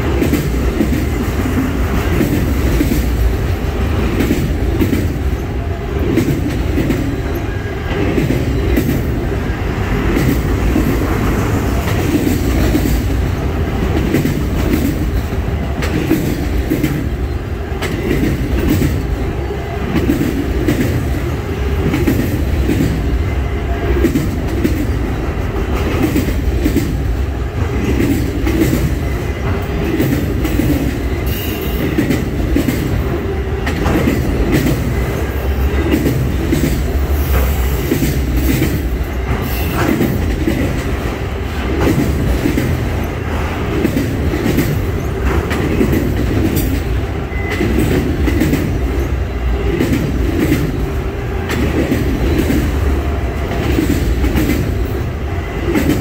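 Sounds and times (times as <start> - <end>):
freight train rumbling past: 0.0 - 56.0
wheels clattering on rails: 0.0 - 56.0.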